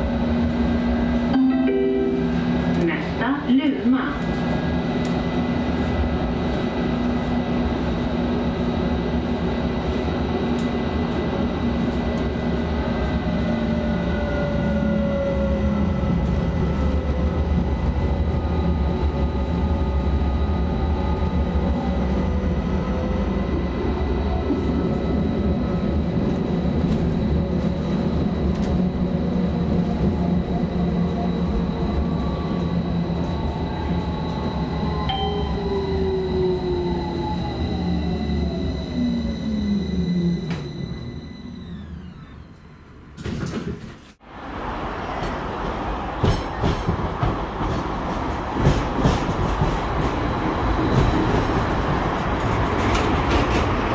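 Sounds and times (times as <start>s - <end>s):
tram wheels rumbling on rails: 0.0s - 42.4s, 43.1s - 53.9s
constant high tone: 32.3s - 41.6s.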